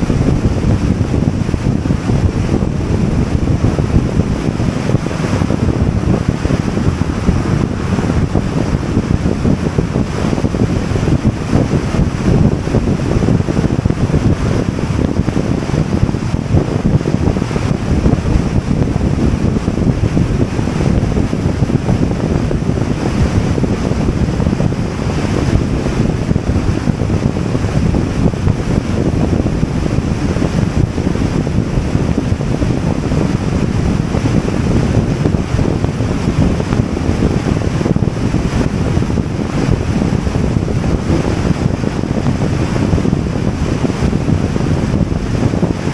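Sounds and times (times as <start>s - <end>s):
wind buffeting microphone: 0.0s - 45.9s
road noise: 4.0s - 11.4s.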